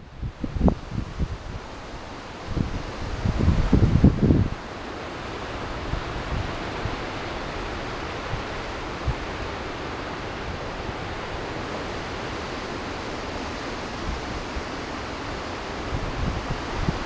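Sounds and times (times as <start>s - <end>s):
strong wind rushing: 0.0s - 4.6s, 5.2s - 17.0s
wind buffeting microphone: 0.0s - 17.0s.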